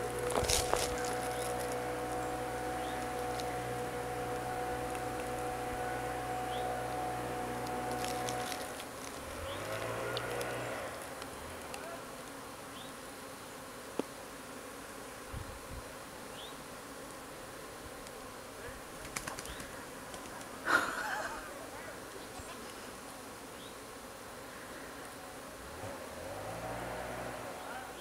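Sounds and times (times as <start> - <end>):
honeybees buzzing: 0.0 - 28.0
hive equipment clicks: 7.6 - 12.4.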